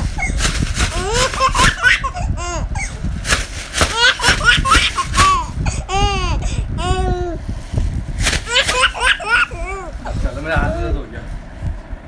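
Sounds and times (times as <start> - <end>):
baby squealing with laughter: 0.0 - 3.0, 3.8 - 6.9, 8.4 - 10.2
baby laughing: 0.1 - 3.0, 3.8 - 7.3, 8.4 - 10.2.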